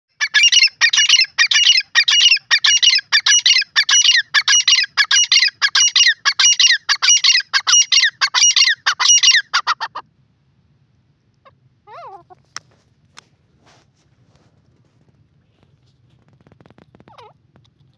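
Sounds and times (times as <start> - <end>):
francolin calling: 0.1 - 10.0.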